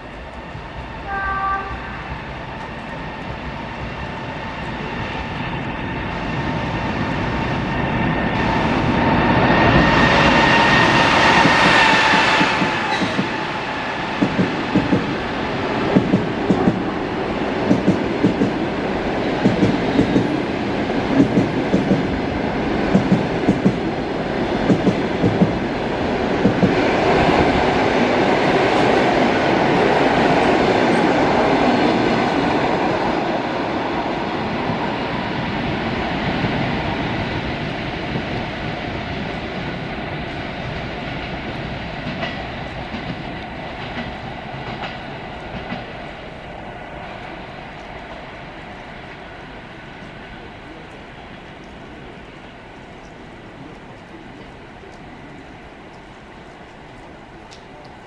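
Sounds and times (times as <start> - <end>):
electric train passing close: 0.0 - 57.9
train wheels clicking over rail joints: 14.2 - 15.1, 15.9 - 16.8, 17.6 - 18.6, 19.4 - 20.4, 21.1 - 22.1, 22.8 - 23.8, 24.6 - 25.6, 26.4 - 27.2.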